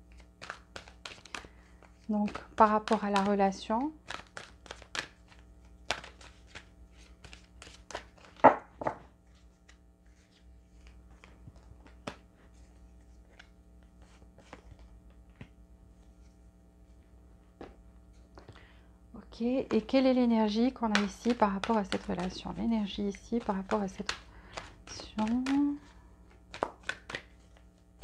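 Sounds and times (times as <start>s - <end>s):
playing cards snapping: 0.1s - 3.4s, 4.0s - 8.5s, 23.4s - 25.6s, 26.5s - 27.6s.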